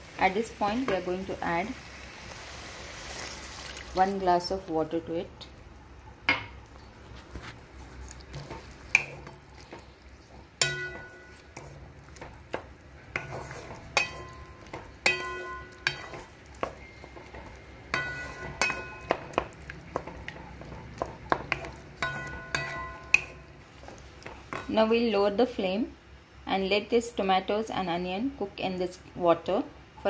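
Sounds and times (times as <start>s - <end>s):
stirring food in water: 7.0s - 24.7s
wooden spatula knocking metal pot: 8.3s - 24.8s.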